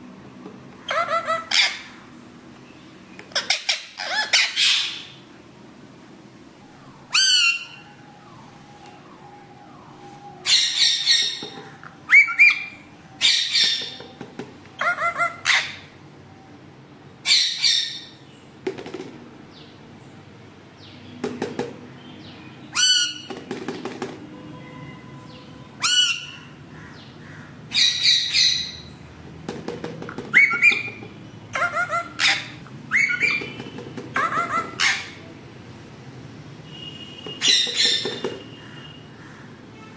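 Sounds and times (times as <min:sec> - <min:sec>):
parakeet high short calls: 0:34.2 - 0:35.2.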